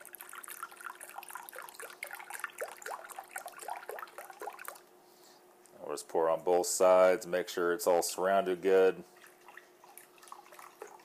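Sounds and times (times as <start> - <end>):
liquid pouring into broth: 0.0 - 4.9.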